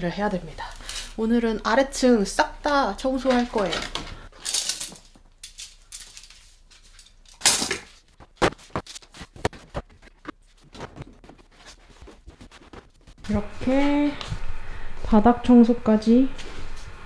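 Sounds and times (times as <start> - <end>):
bags and cardboard rustling: 3.1 - 5.2, 5.8 - 14.2.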